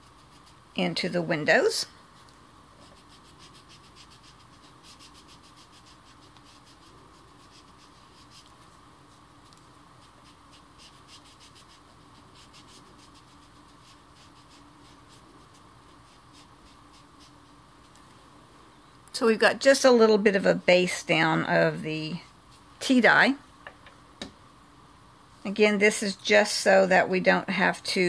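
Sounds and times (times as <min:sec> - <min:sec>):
ink applicator tapping and scratching: 0:02.8 - 0:08.8, 0:09.4 - 0:18.0.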